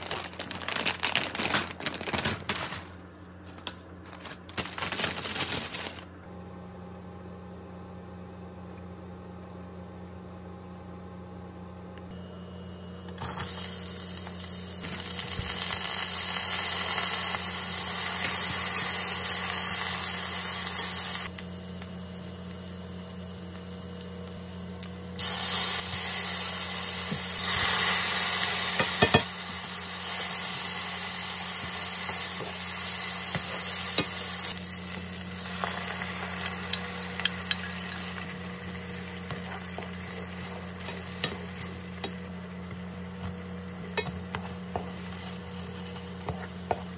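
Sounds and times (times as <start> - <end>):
onion sizzling in oil: 13.2 - 43.1, 44.4 - 46.9
sauce sizzling: 13.5 - 23.4, 25.2 - 42.4.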